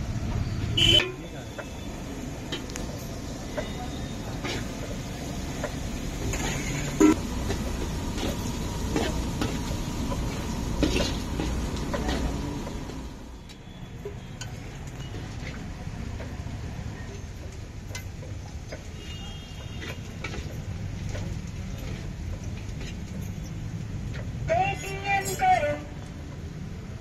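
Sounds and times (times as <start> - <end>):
metal utensils scraping pan: 4.4 - 4.8, 5.6 - 7.2, 10.3 - 12.3.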